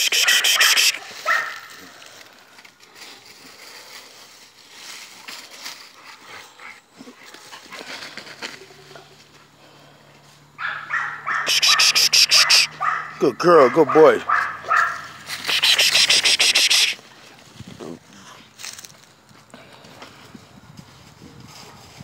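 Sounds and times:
paws scuffling in dry leaves: 0:00.2 - 0:09.4, 0:14.0 - 0:19.3, 0:20.4 - 0:22.0.

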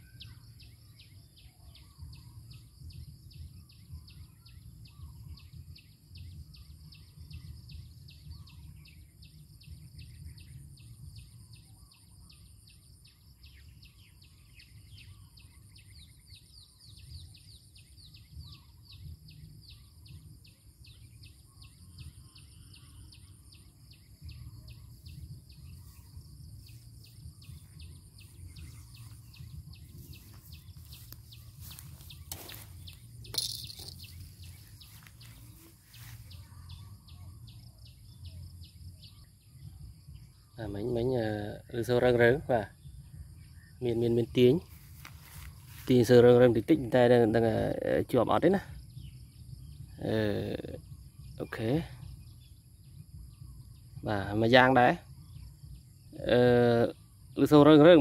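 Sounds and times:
insects chirping: 0:00.0 - 0:58.0
high insect whine: 0:18.5 - 0:47.1.

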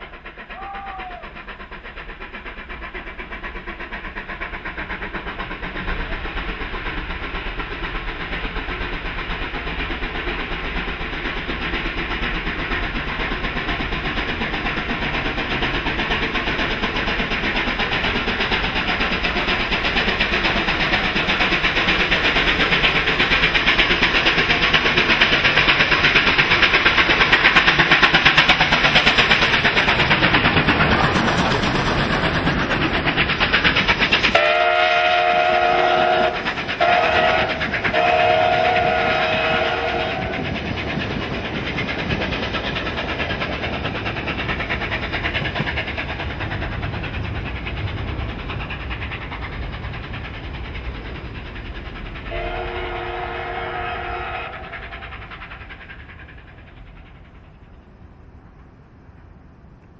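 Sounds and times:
steam locomotive exhaust: 0:00.0 - 0:59.9
train rolling: 0:00.0 - 0:59.9
chime steam whistle: 0:34.3 - 0:40.3, 0:52.3 - 0:54.8.

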